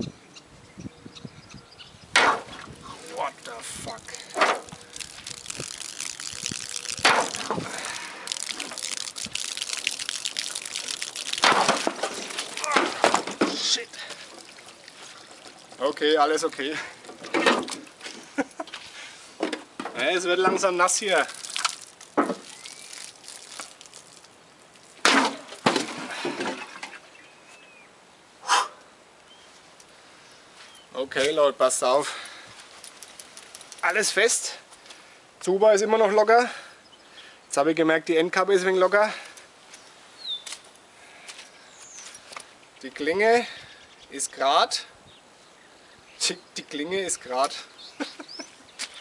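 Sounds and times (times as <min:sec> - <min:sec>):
liquid splattering on wood: 0:02.2 - 0:18.3, 0:19.4 - 0:27.0
liquid gushing from metal can: 0:03.1 - 0:18.0, 0:20.6 - 0:26.9.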